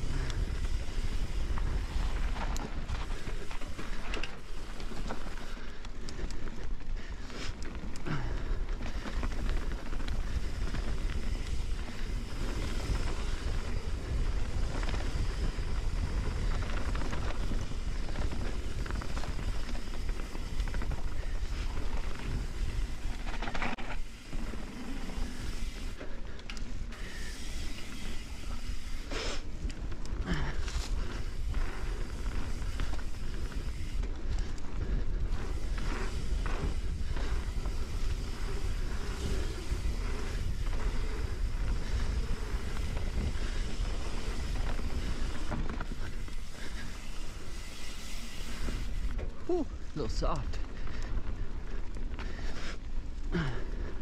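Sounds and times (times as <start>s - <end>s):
wind rumble on microphone: 0.0s - 4.2s, 8.9s - 23.7s, 29.7s - 49.2s
bike knocking and rattling: 0.0s - 54.0s
bike tyres on dirt: 0.0s - 54.0s.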